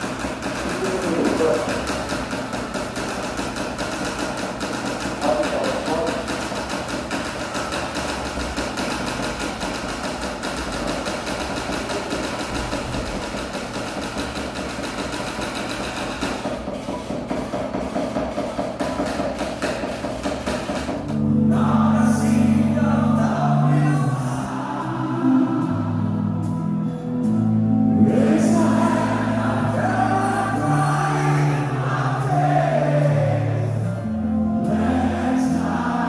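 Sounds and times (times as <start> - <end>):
live concert music: 20.6 - 36.0.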